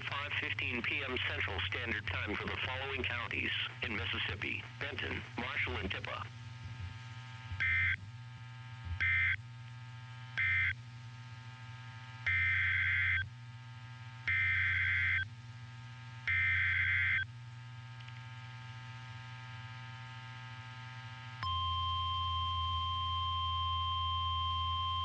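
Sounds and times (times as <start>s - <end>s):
low radio hum: 0.0s - 25.0s.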